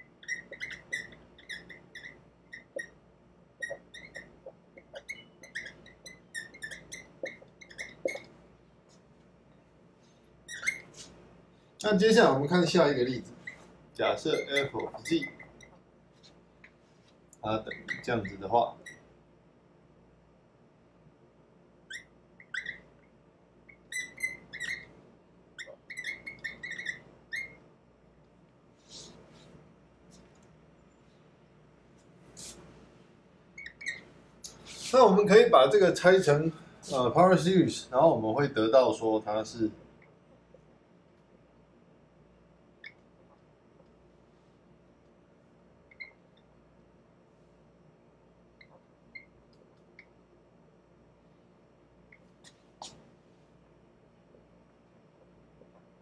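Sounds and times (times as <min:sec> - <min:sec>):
marker squeaking on whiteboard: 0:00.0 - 0:09.0, 0:10.0 - 0:11.2, 0:13.3 - 0:19.1, 0:21.8 - 0:27.7, 0:28.8 - 0:31.0, 0:32.2 - 0:32.6, 0:33.5 - 0:36.1, 0:42.8 - 0:43.5, 0:45.9 - 0:46.5, 0:48.6 - 0:50.2, 0:52.1 - 0:53.1.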